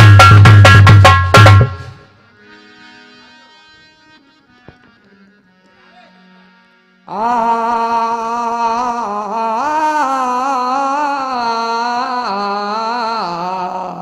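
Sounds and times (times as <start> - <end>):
man singing long note: 7.1 - 14.0.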